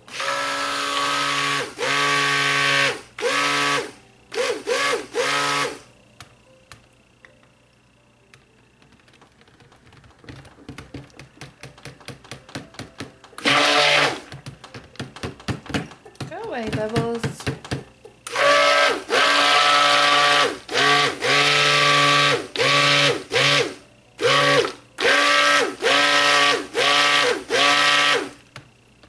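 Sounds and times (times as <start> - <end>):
stick blender motor pulsing: 0.0 - 5.9, 13.4 - 14.4, 18.3 - 28.4.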